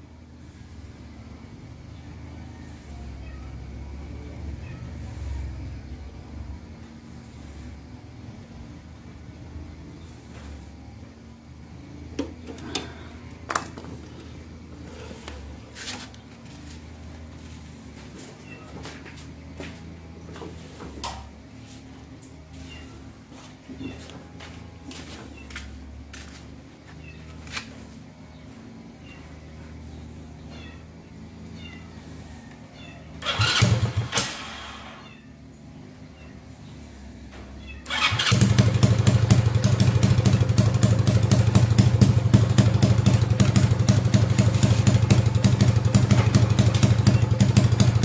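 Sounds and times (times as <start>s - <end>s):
small engine humming and revving: 31.4s - 35.2s, 37.8s - 48.0s.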